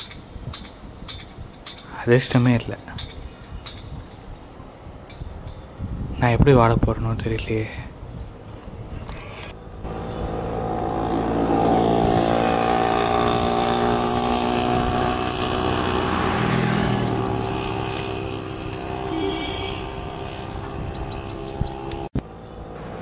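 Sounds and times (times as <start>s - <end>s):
vehicle engine passing by: 9.8s - 23.0s.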